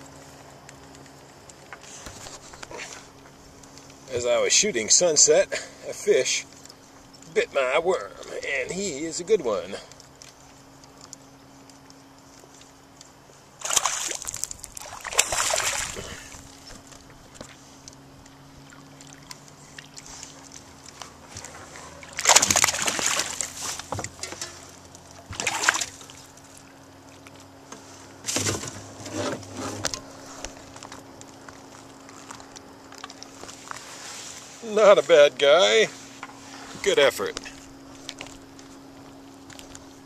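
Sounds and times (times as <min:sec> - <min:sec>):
fish splashing at water surface: 0:13.6 - 0:17.0, 0:21.8 - 0:26.7.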